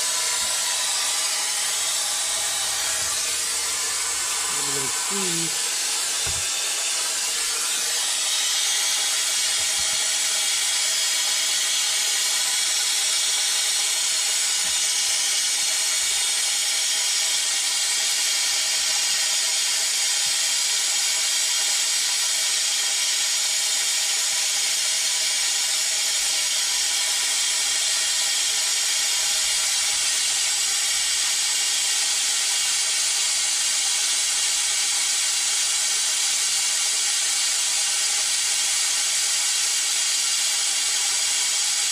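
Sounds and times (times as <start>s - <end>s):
compressed air hissing: 0.0s - 15.9s.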